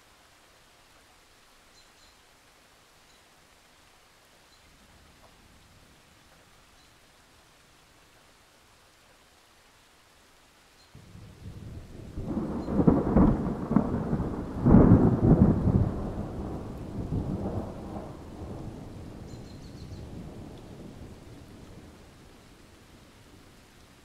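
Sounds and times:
rolling thunder: 0:11.0 - 0:22.1.

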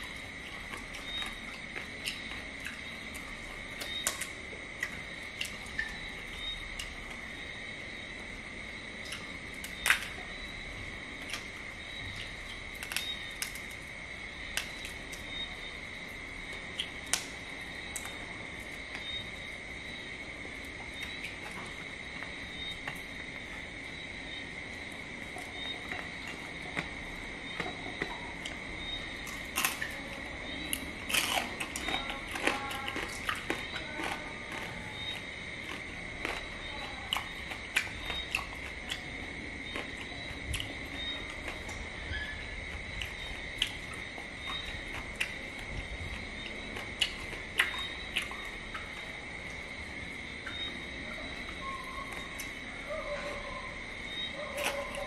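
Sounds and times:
chewing crunches: 0:00.0 - 0:07.5, 0:09.0 - 0:52.6, 0:54.1 - 0:55.0
crab shell cracking: 0:16.8 - 0:17.4, 0:29.2 - 0:30.0, 0:30.7 - 0:36.5.

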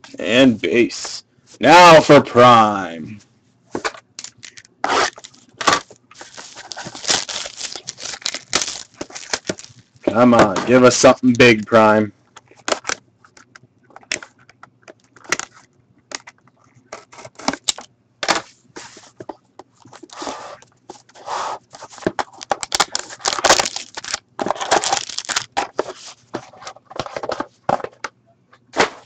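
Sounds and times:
foil pack crinkling and tearing: 0:04.2 - 0:10.0, 0:22.3 - 0:25.6.

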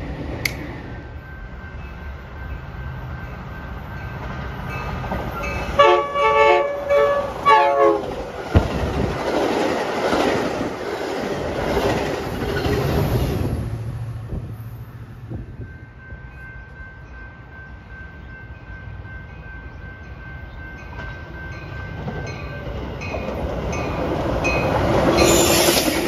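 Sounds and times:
train wheels clattering on rails: 0:02.9 - 0:05.8, 0:08.0 - 0:13.6, 0:20.5 - 0:26.0
train horn blasts: 0:05.7 - 0:08.2.

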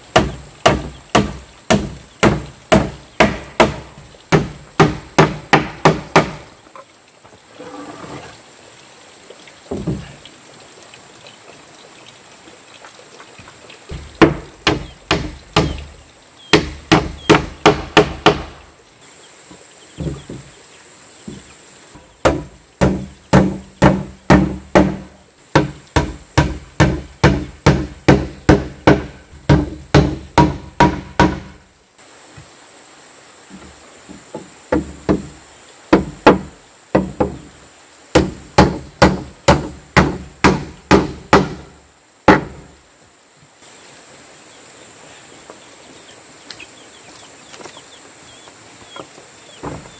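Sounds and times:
hammer nailing wooden planks: 0:00.1 - 0:06.5, 0:13.9 - 0:15.9, 0:16.5 - 0:18.6, 0:22.2 - 0:31.6, 0:35.9 - 0:37.4, 0:38.1 - 0:41.7, 0:42.3 - 0:42.6.

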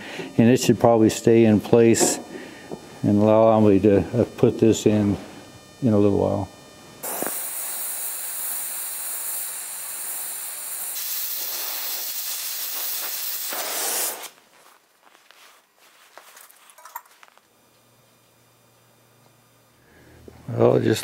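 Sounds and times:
torch flame hissing: 0:07.0 - 0:14.4.

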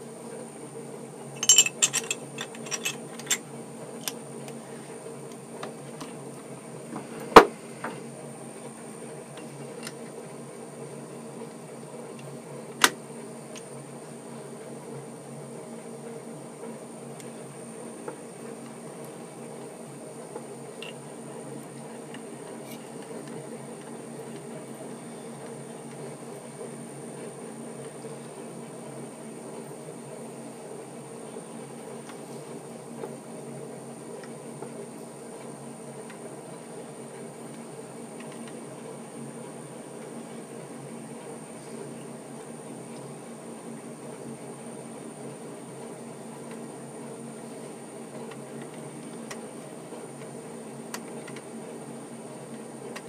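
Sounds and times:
metal lathe running: 0:01.3 - 0:03.4
faint high whine: 0:17.0 - 0:29.6.

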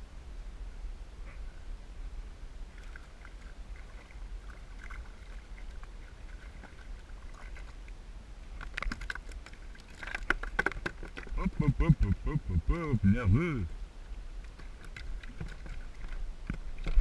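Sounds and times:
water lapping against kayak: 0:02.7 - 0:17.0
fish flapping against kayak: 0:08.6 - 0:11.4, 0:14.4 - 0:17.0.

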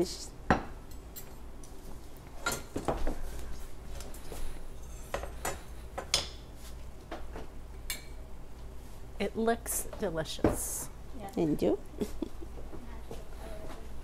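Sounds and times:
dishes and utensils clinking: 0:02.4 - 0:03.2, 0:04.3 - 0:06.5.

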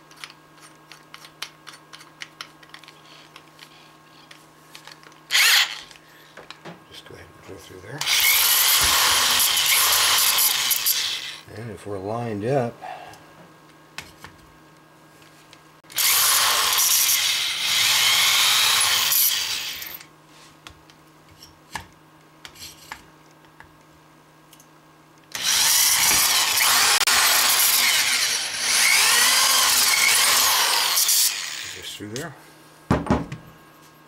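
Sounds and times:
electric drill drilling metal tube: 0:05.3 - 0:05.9, 0:08.0 - 0:11.4, 0:15.9 - 0:20.1, 0:25.3 - 0:31.9.

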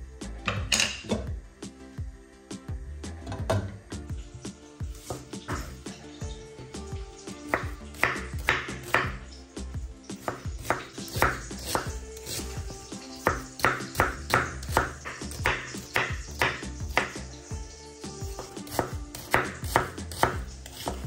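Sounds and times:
background music: 0:00.0 - 0:21.0
knife chopping on cutting board: 0:05.0 - 0:05.8, 0:07.5 - 0:09.2, 0:10.2 - 0:12.6, 0:13.2 - 0:17.2, 0:18.3 - 0:21.0.

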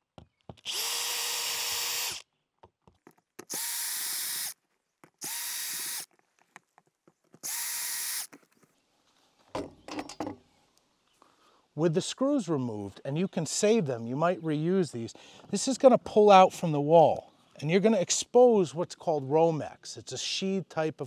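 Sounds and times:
cordless drill motor whine: 0:00.6 - 0:02.2, 0:03.5 - 0:04.6, 0:05.2 - 0:06.1, 0:07.4 - 0:08.3.

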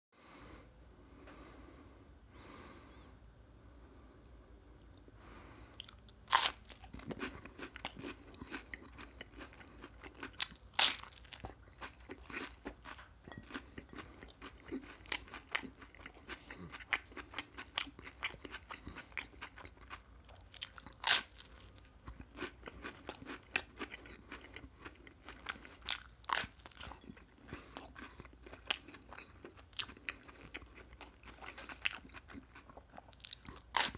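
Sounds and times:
chewing crunches: 0:05.7 - 0:33.9
loud crunches of toast: 0:20.5 - 0:21.7.

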